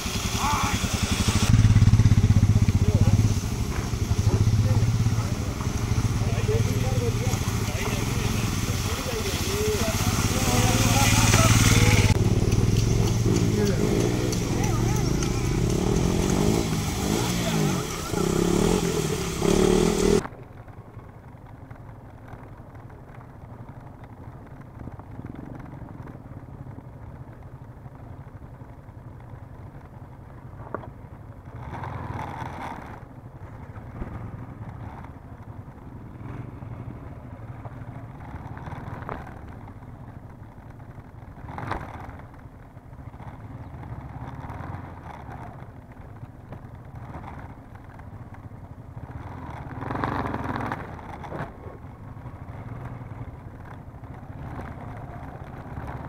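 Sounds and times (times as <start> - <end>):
loud rushing noise: 0.0 - 20.2
muffled motorcycle engines: 0.0 - 56.0.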